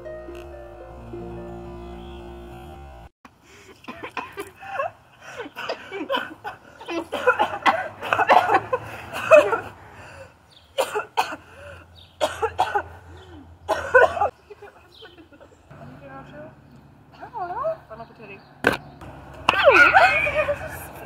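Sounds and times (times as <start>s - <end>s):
coughing and spluttering breaths: 3.5s - 10.2s
women laughing hard: 3.8s - 9.8s.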